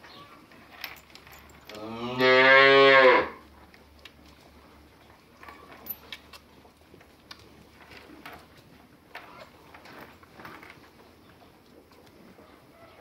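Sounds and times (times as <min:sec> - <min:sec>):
cow mooing: 0:01.7 - 0:03.4.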